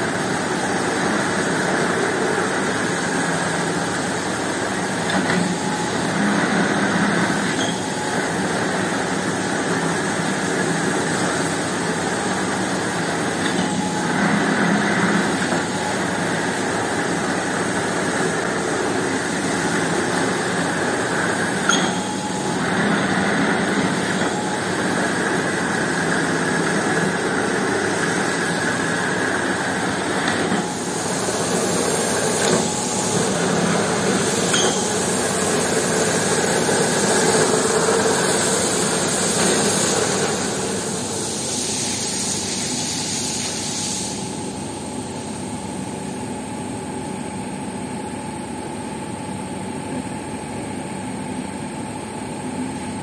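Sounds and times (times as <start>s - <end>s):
machine motor drone: 0.0s - 47.0s
high-pressure water jet hissing: 9.8s - 44.5s.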